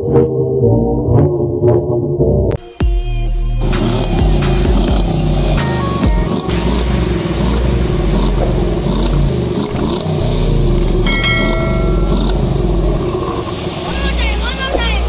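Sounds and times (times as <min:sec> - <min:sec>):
car engine revving: 0:03.4 - 0:15.0
short chime ding: 0:11.1 - 0:12.4.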